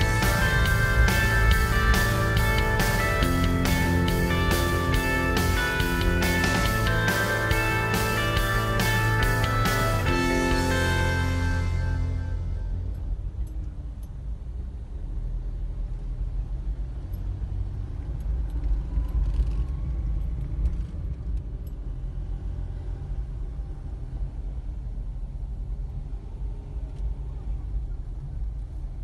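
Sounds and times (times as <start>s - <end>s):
car cabin rumble: 0.0s - 12.9s.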